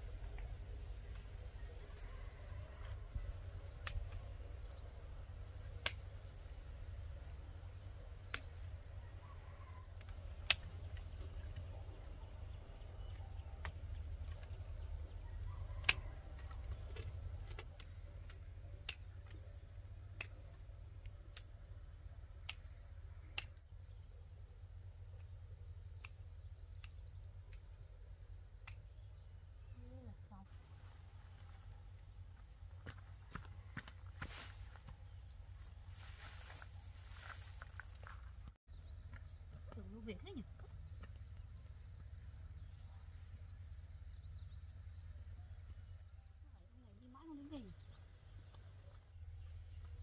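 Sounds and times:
low steady rumble: 0.0 - 50.0
pruning shears snipping: 2.8 - 4.7, 5.7 - 6.1, 9.9 - 11.7, 13.1 - 21.5.

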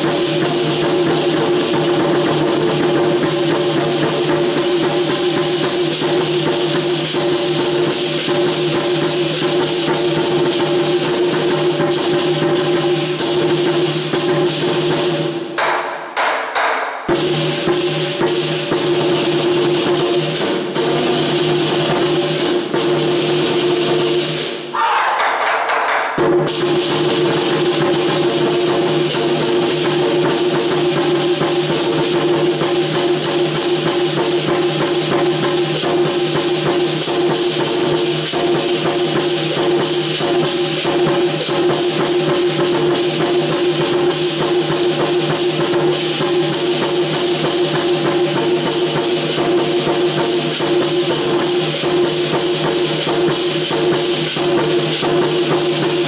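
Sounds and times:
drum cymbals and gong beating: 0.0 - 24.7, 26.2 - 56.0.

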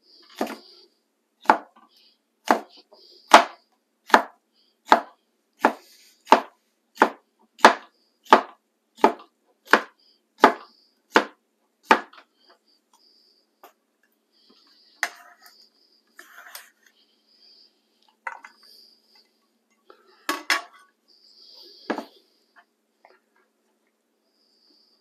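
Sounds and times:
knife chopping on wooden board: 0.4 - 0.6, 2.4 - 2.7, 3.3 - 4.3, 4.9 - 10.6, 11.9 - 12.2.

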